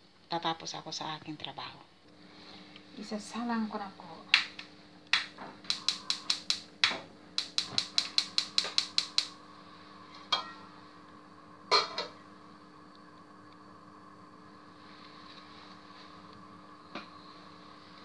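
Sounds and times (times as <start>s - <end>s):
gas stove igniter clicking: 4.3s - 9.4s.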